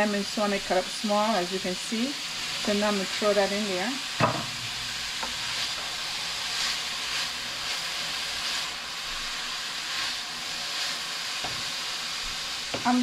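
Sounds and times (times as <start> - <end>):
vegetables sizzling in oil: 0.0 - 13.0
sharp knock in pan: 4.2 - 4.7.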